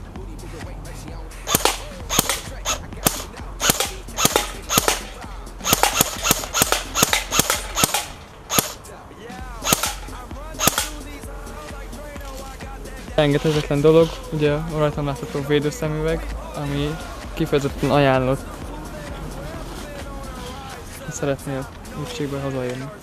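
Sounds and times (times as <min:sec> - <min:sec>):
airsoft gun shots: 0:01.5 - 0:11.2.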